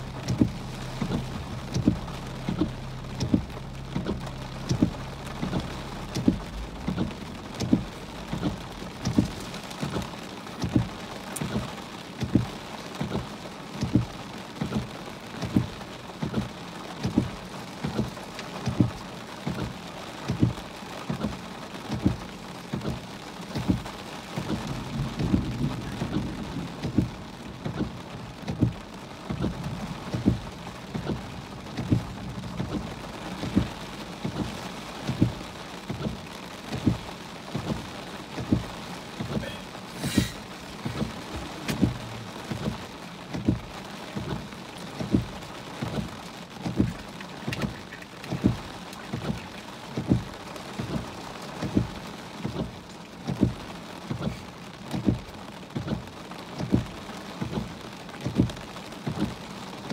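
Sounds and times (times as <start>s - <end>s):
regular low thump: 0.0s - 39.5s, 40.1s - 54.3s
heavy rain on a car roof: 0.0s - 59.9s
brief sharp hiss: 39.4s - 40.4s.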